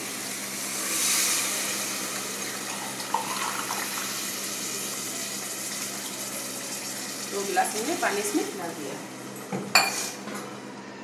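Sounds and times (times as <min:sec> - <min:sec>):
pressure cooker hissing: 0:00.0 - 0:09.2.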